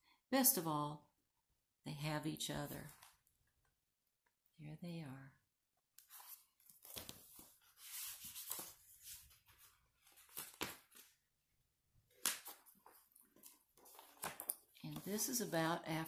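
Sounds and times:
books rustling and handled: 0:06.0 - 0:11.2, 0:12.1 - 0:16.0.

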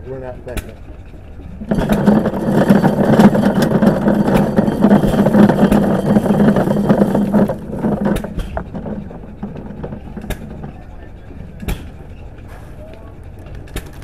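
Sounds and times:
steady low hum: 0:00.0 - 0:14.0
corn sheller rattling: 0:01.6 - 0:12.0.

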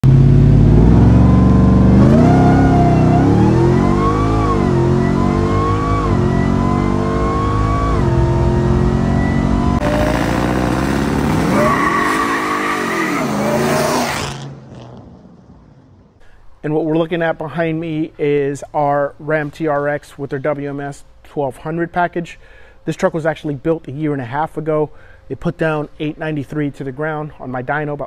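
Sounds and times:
engine accelerating through gears: 0:00.0 - 0:15.4
engine revving: 0:00.0 - 0:15.8.

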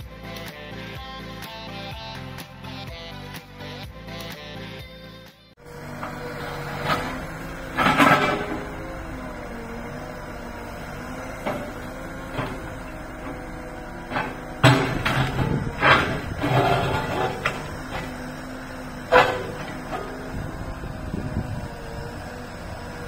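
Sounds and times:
diesel engine running: 0:05.6 - 0:23.0.

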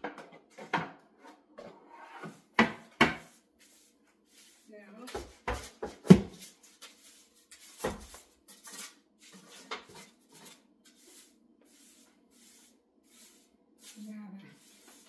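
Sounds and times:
kitchen items knocking and clunking: 0:00.0 - 0:03.3, 0:05.0 - 0:06.5.

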